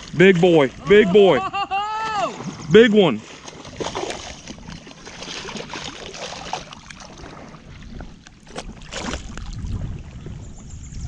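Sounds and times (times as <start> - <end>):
water splashing and sloshing: 0.0 - 11.0
sharp splashes: 2.0 - 7.6, 8.4 - 10.1.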